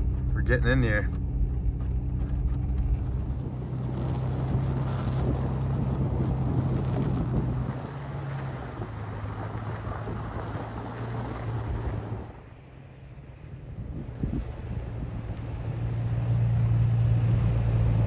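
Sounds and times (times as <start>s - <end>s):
low engine hum: 0.0s - 18.0s
tires rolling on snow: 0.0s - 18.0s
wind buffeting microphone: 1.9s - 12.4s, 13.6s - 16.0s.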